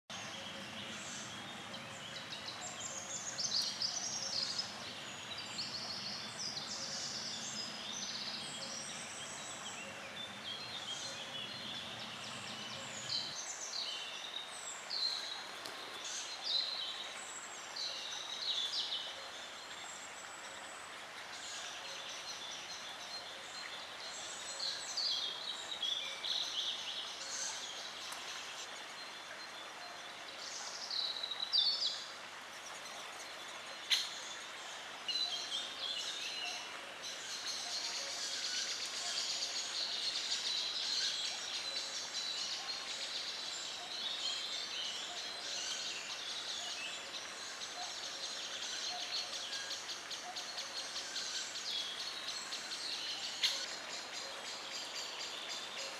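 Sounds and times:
birds chirping and trilling: 35.1s - 55.9s.

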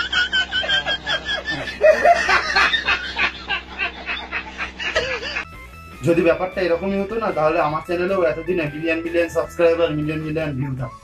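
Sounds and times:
man laughing hard: 0.0s - 5.5s.

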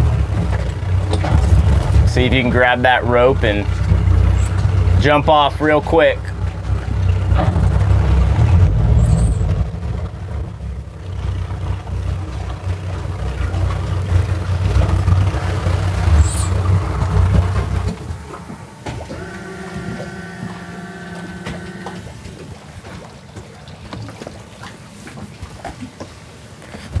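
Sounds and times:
outboard motors rumbling: 0.0s - 27.0s
steady held tone: 15.9s - 22.4s.

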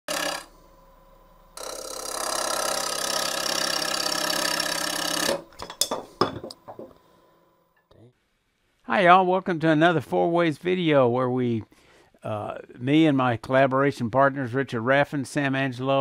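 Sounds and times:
wood lathe cutting with chatter: 0.1s - 0.6s, 1.5s - 5.5s.

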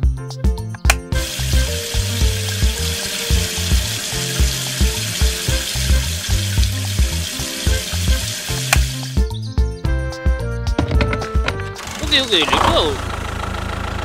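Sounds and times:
background music with a beat: 0.0s - 11.8s
water stream splashing onto sand: 1.2s - 9.2s.

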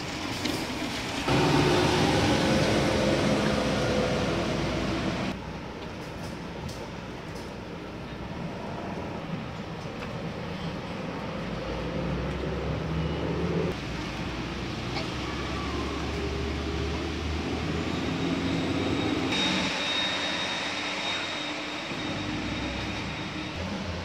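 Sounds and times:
rain hiss: 0.0s - 5.4s
traffic engine rumble: 0.0s - 24.0s.

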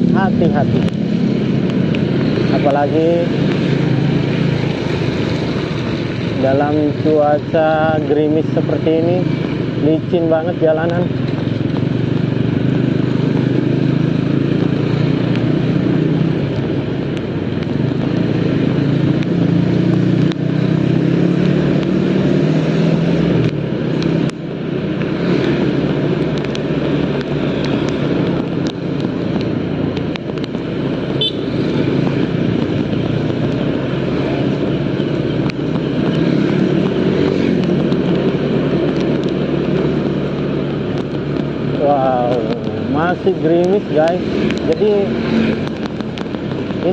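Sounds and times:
motorcycle engine running: 0.0s - 46.9s
wind and tyres hissing on wet road: 35.4s - 46.9s.

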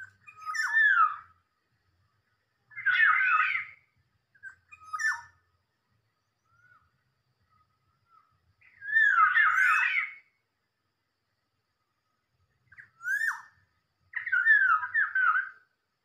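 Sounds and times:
bird whistled calls: 0.0s - 1.3s, 2.8s - 3.8s, 4.4s - 5.4s, 8.6s - 10.2s, 12.7s - 15.6s
short bird calls: 0.0s - 1.4s, 2.7s - 5.4s, 8.1s - 10.3s, 12.7s - 15.7s.

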